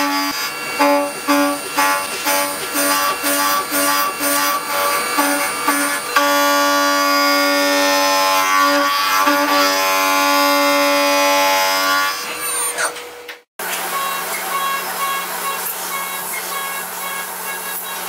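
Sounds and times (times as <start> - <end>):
milling machine cutting steel: 0.0 - 12.8.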